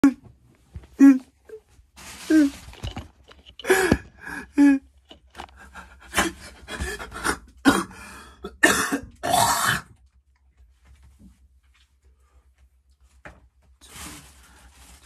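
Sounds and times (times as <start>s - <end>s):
man coughing: 8.6s - 9.1s.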